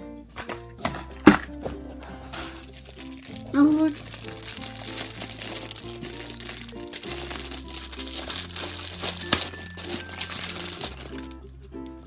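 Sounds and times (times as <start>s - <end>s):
light background music: 0.0s - 12.0s
plastic bag crinkling: 2.3s - 12.0s.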